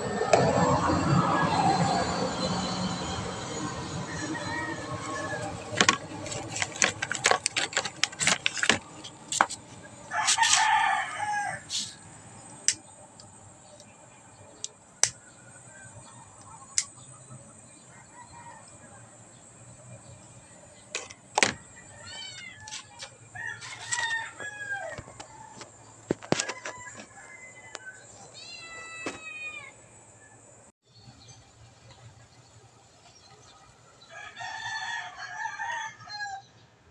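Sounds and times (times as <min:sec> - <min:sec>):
rooster crowing: 0:00.2 - 0:07.9, 0:10.0 - 0:12.1, 0:17.6 - 0:19.6, 0:21.4 - 0:30.4, 0:34.1 - 0:36.6.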